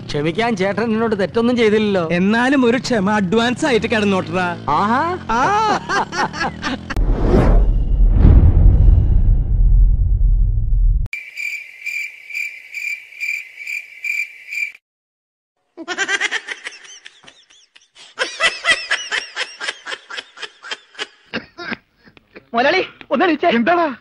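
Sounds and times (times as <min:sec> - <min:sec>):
high-pitched laughter: 0:05.3 - 0:07.0, 0:15.8 - 0:22.5
cricket chirping: 0:11.2 - 0:14.8.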